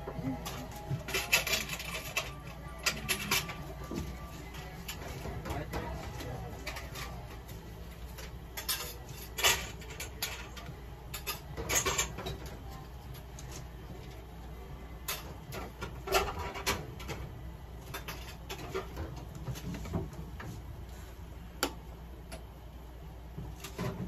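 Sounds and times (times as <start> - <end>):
low steady hum: 0.0 - 24.0.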